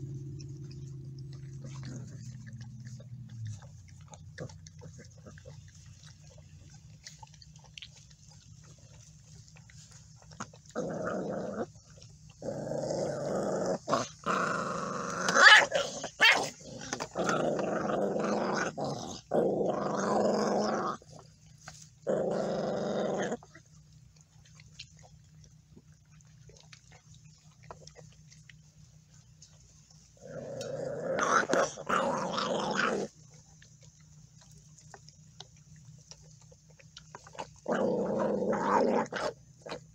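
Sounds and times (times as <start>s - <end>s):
puppies growling: 0.0s - 39.9s
puppy yelps: 15.3s - 16.5s.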